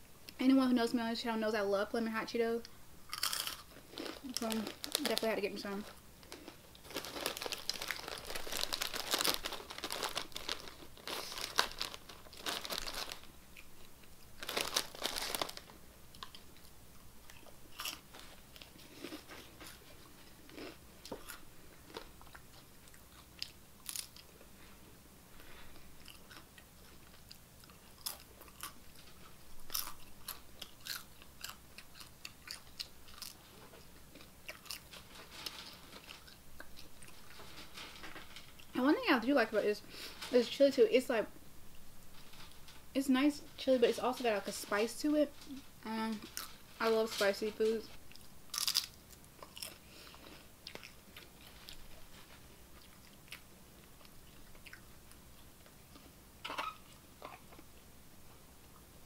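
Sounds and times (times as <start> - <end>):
crunching and chewing chips: 3.1 - 24.7, 25.4 - 38.8, 45.4 - 57.8
hand rustling in snack bag: 3.2 - 13.3, 14.4 - 16.4.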